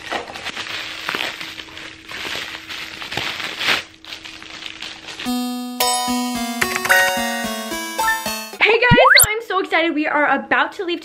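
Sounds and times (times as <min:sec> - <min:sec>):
packaging crinkling and rustling: 0:00.0 - 0:05.2.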